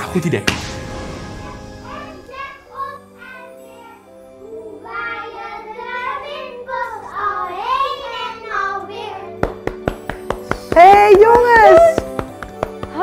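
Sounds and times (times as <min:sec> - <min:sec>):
soft background music: 0:00.0 - 0:13.0
children singing together: 0:02.4 - 0:09.4.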